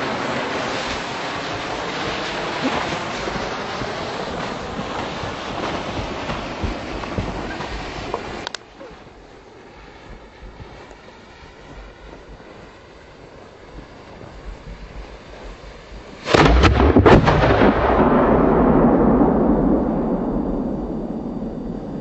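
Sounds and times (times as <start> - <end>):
firework fuse burning: 0.0 - 8.7
long rumble: 0.0 - 22.0
firework boom: 0.8 - 9.3, 13.6 - 22.0.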